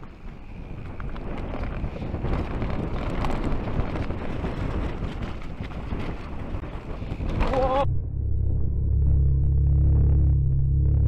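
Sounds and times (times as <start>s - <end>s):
bike tyres rolling on dirt: 0.0s - 7.8s
wind on microphone: 0.0s - 8.2s
muffled low rumble: 7.2s - 11.0s.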